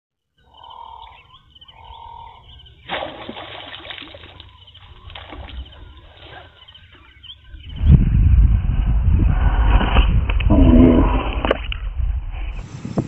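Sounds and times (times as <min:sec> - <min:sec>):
fish splashing in water: 0:02.8 - 0:05.8.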